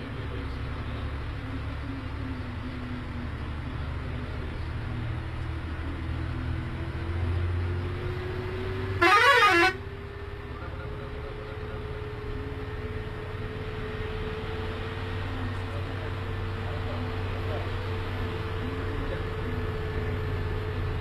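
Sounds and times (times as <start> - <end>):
bus engine drone: 0.0 - 21.0
warbling melody air horn: 9.0 - 9.8.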